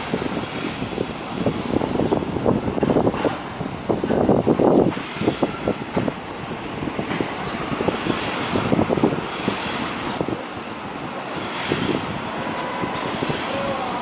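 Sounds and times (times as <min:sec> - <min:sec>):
subway train rumbling on rails: 0:00.0 - 0:14.0
high-pitched wheel squeals: 0:11.4 - 0:13.9.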